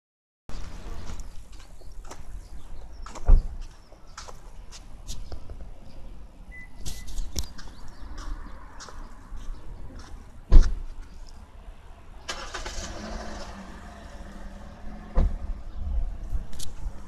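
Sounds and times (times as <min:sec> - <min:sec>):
vehicle engine starting and running: 0:12.2 - 0:17.0.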